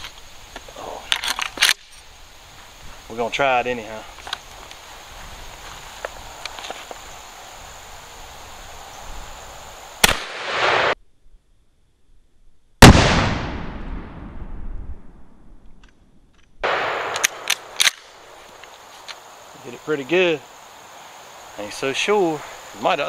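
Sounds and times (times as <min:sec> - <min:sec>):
shotgun shots: 0:10.0 - 0:11.0, 0:12.8 - 0:14.4, 0:16.6 - 0:18.0
sharp clicks: 0:15.6 - 0:19.2.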